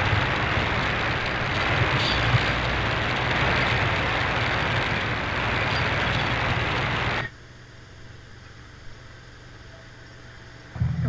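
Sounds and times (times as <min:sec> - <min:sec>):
radio static hiss: 0:00.0 - 0:07.4
faint low hum: 0:00.0 - 0:11.0.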